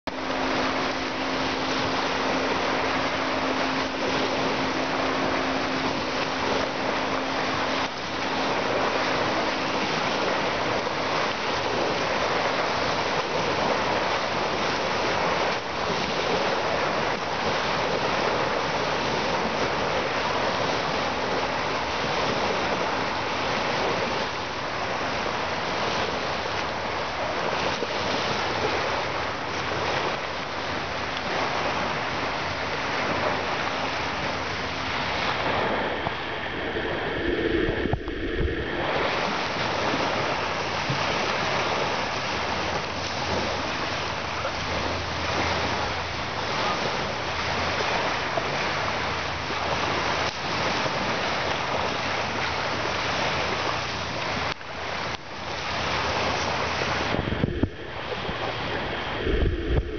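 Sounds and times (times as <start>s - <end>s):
low steady hum: 0.0s - 59.9s
waves breaking on pebble beach: 0.1s - 59.9s.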